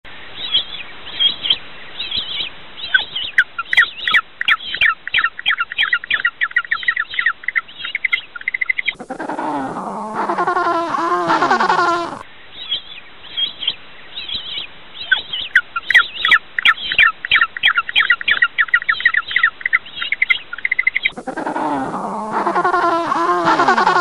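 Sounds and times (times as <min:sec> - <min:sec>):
penguin braying call: 0:09.0 - 0:12.2, 0:21.1 - 0:24.0.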